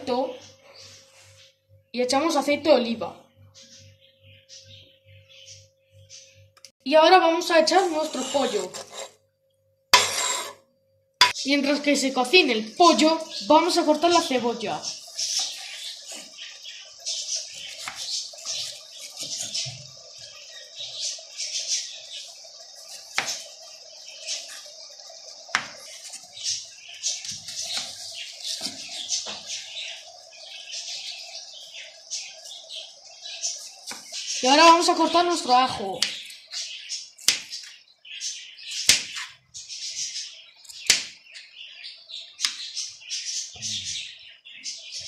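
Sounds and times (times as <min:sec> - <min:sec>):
high irregular chirping: 0:03.5 - 0:09.2, 0:10.0 - 0:10.6
knife slicing onion: 0:10.0 - 0:10.6.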